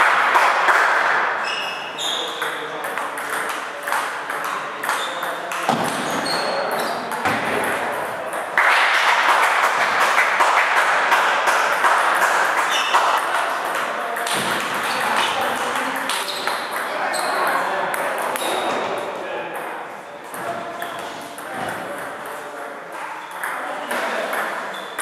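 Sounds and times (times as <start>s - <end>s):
steady background noise: 0.0s - 25.0s.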